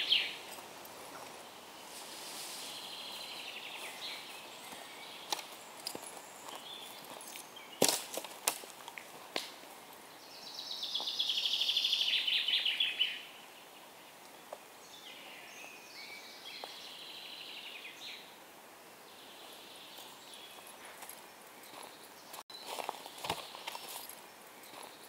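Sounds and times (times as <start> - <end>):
songbird trilling: 0.0 - 0.4.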